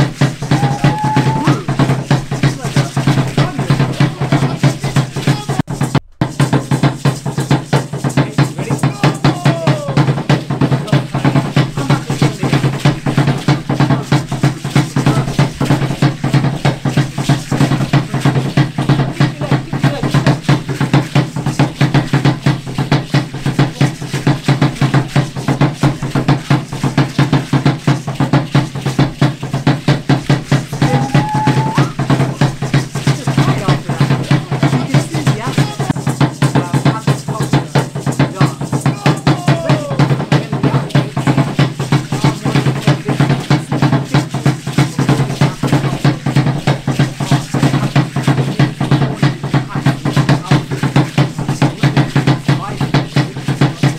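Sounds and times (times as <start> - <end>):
drum beaten in fast rhythm: 0.0 - 53.9.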